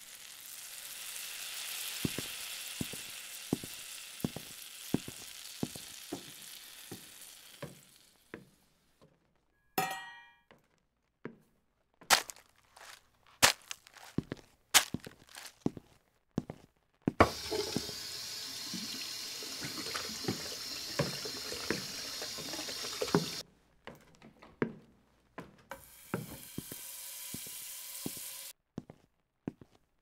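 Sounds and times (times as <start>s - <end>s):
running water: 17.2s - 23.4s, 25.9s - 28.5s.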